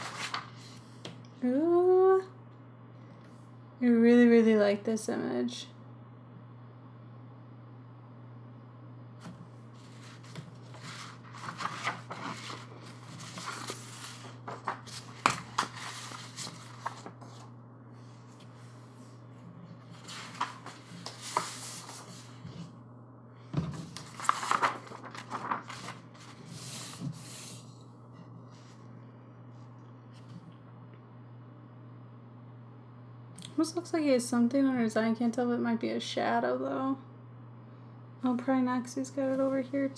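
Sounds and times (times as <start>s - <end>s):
paper rustling and crinkling: 0.0s - 0.8s, 9.8s - 17.5s, 19.8s - 22.4s, 23.6s - 27.5s
steady low hum: 0.0s - 39.9s.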